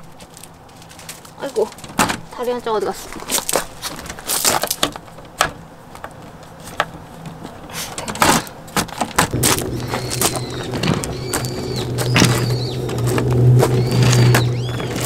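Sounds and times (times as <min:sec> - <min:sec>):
folding table clattering on gravel: 0:00.0 - 0:15.0.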